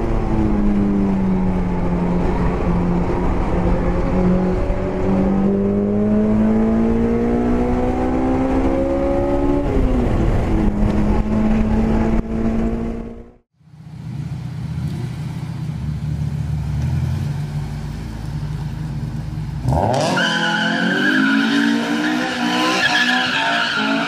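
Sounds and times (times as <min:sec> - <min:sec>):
car engine running: 0:09.8 - 0:19.8.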